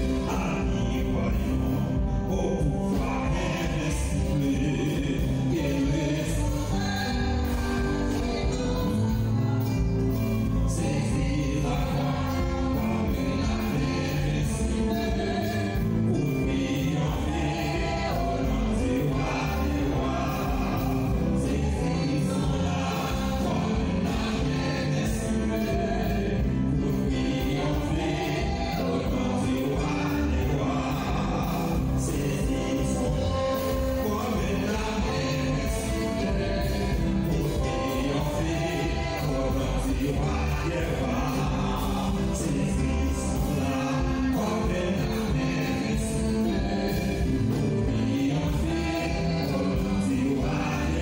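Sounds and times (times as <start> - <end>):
choir singing gospel song: 0.0 - 51.0
instrumental accompaniment with beat: 0.0 - 51.0.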